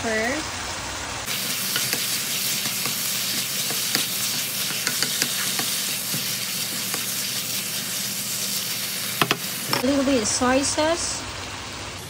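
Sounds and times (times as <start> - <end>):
food sizzling in a pan: 0.0 - 12.0
wooden spatula stirring: 1.3 - 9.9.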